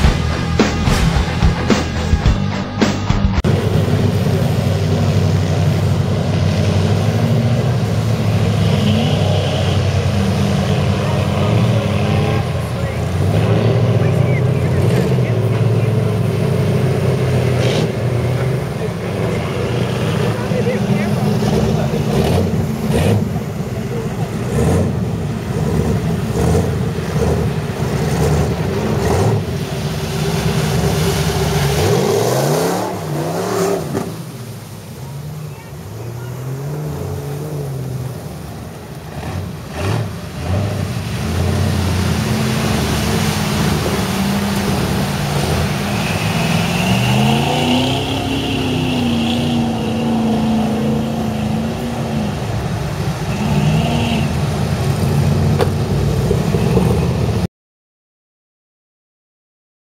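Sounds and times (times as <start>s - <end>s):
truck engine under load: 0.0s - 53.3s
tyres throwing mud and water: 0.0s - 57.5s.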